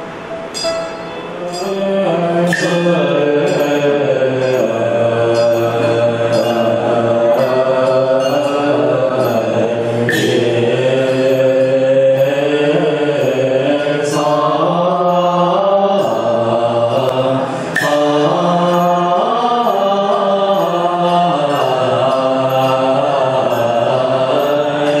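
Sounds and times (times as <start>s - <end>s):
short sharp strikes: 0.0s - 12.3s
monk chanting into microphone: 1.4s - 25.0s.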